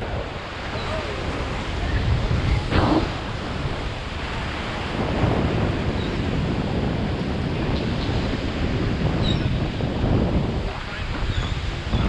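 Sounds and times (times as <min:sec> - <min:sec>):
surf washing around pilings: 0:00.0 - 0:12.0
wind buffeting microphone: 0:00.0 - 0:12.0.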